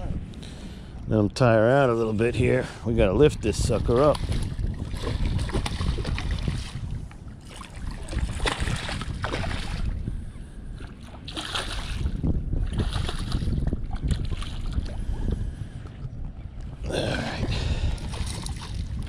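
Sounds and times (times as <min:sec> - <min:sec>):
wind buffeting microphone: 0:00.0 - 0:19.0
fish splashing at water surface: 0:11.3 - 0:12.1.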